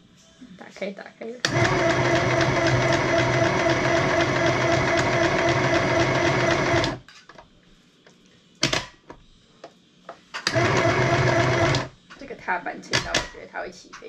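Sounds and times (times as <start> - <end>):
sewing machine stitching: 1.4 - 7.0, 10.5 - 11.9.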